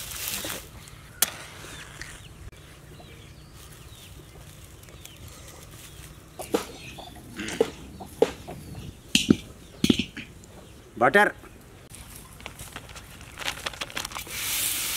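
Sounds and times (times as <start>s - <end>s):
chickens clucking: 4.1s - 11.6s
sharp knocks: 6.4s - 10.3s.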